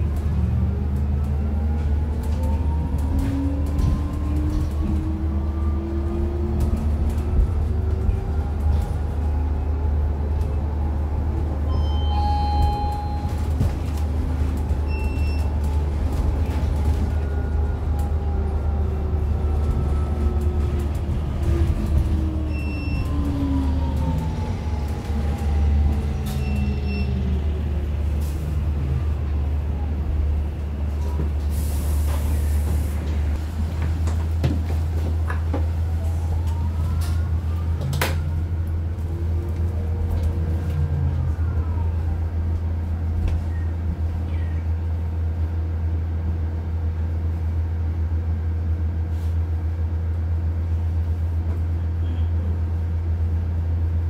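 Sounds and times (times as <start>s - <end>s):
low road rumble: 0.0s - 54.0s
short beeps: 11.7s - 13.4s.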